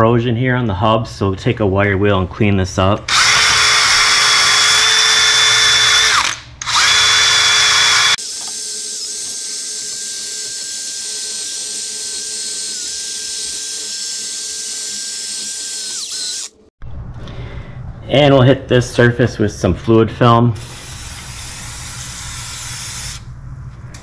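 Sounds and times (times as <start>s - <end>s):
power drill wire wheel scrubbing: 3.1s - 16.6s.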